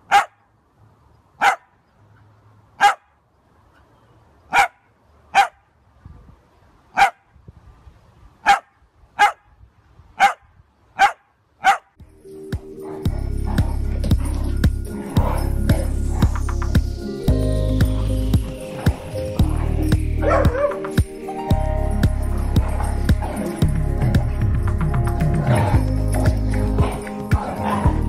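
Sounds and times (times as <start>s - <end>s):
dog barking: 0.1s - 0.4s, 1.4s - 1.7s, 2.8s - 3.2s, 4.5s - 5.6s, 7.0s - 7.2s, 8.4s - 9.5s, 10.2s - 12.0s, 20.2s - 20.8s, 25.4s - 28.0s.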